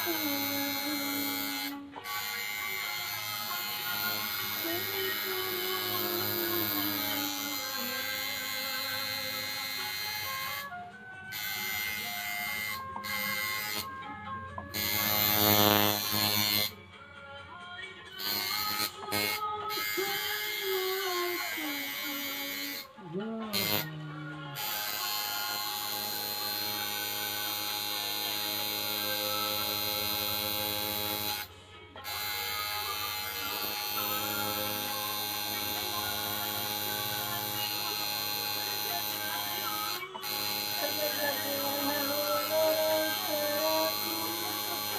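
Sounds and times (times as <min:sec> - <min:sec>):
tattoo machine buzzing: 0:00.0 - 0:14.0, 0:14.6 - 0:16.8, 0:18.2 - 0:23.9, 0:24.6 - 0:44.9.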